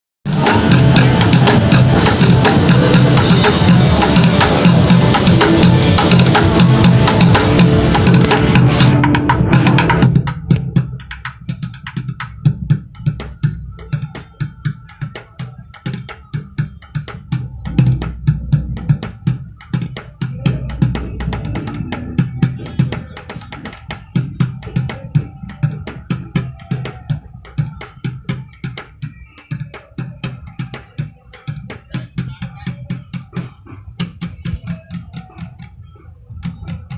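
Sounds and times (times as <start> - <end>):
deep thuds of bucket drums: 15.9 - 28.5.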